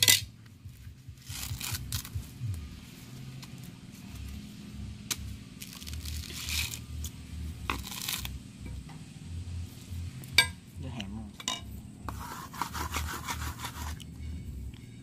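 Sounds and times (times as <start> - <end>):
coconut husk tearing: 1.0 - 8.4.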